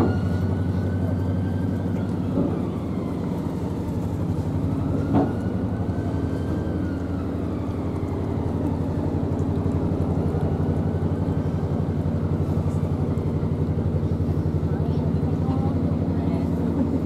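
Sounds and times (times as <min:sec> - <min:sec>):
diesel engine chugging: 0:00.0 - 0:17.0.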